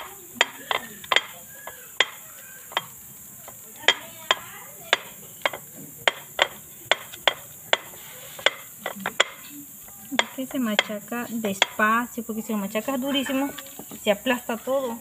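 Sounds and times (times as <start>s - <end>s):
stone knocking on table: 3.9s - 9.4s.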